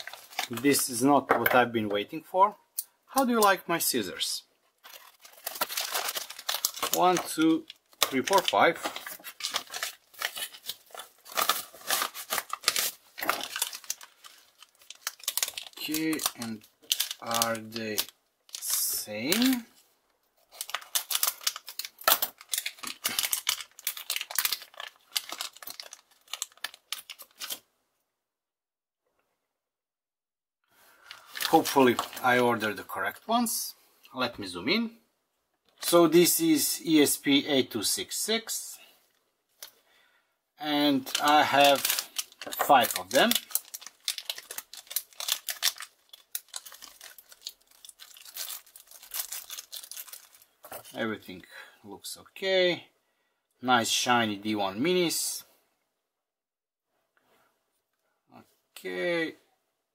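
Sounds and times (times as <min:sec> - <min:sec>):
plastic bags crinkling: 0:00.0 - 0:00.9, 0:04.7 - 0:19.7, 0:20.4 - 0:27.6, 0:31.0 - 0:32.7, 0:40.9 - 0:51.0.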